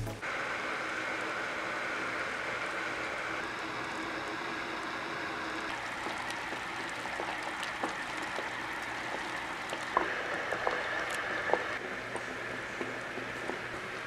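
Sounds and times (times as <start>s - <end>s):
bubbling hiss of heating pack: 0.2s - 11.8s
small pops and crackles: 5.7s - 13.7s.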